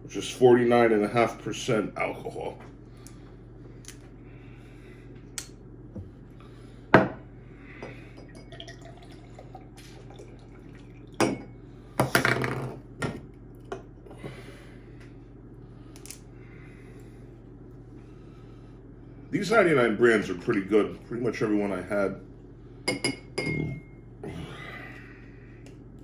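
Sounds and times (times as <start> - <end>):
liquid pouring into glass: 8.2 - 11.5.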